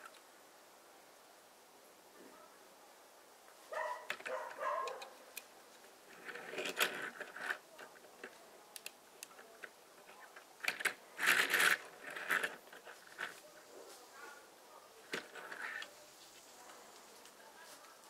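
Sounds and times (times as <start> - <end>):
plastic bricks clicking: 6.1 - 13.3.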